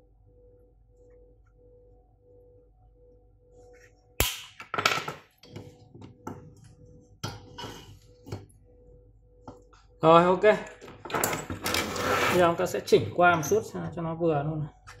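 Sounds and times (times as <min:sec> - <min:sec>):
faint steady hum: 0:00.0 - 0:04.8, 0:05.4 - 0:11.8.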